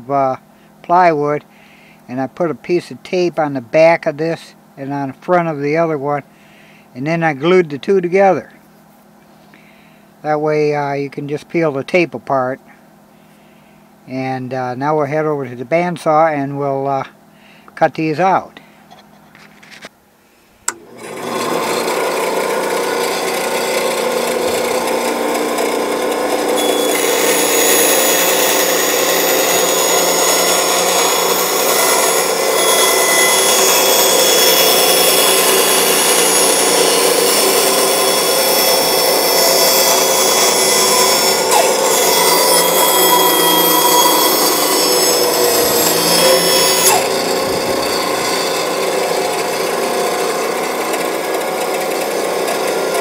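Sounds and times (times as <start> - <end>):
band saw cutting plywood: 20.7 - 53.0.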